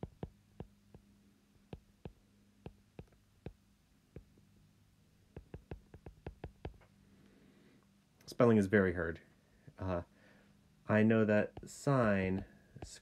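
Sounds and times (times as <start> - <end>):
stylus tapping on glass screen: 0.0 - 1.1, 1.7 - 4.4, 5.3 - 6.9
low steady hum: 0.0 - 13.0.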